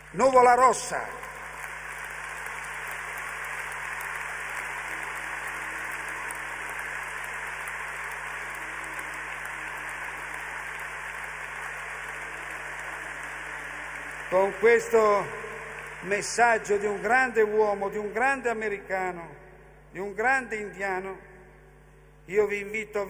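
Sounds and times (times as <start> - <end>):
large audience applauding: 0.0 - 18.3.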